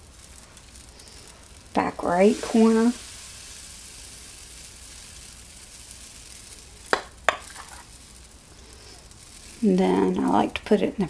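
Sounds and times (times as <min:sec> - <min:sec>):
batter sizzling on griddle: 0:00.0 - 0:11.0
sharp taps: 0:07.0 - 0:07.5.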